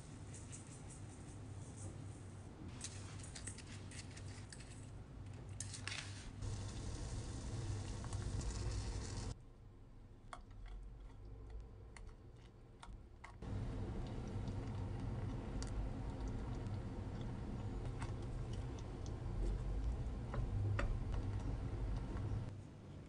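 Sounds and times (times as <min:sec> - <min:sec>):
steady low hum: 0:13.4 - 0:23.0.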